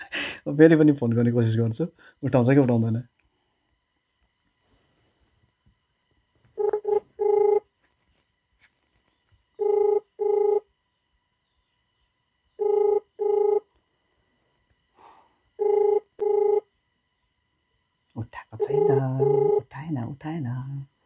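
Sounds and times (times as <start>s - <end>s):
phone ringback double beep: 9.6s - 10.6s, 12.6s - 13.6s.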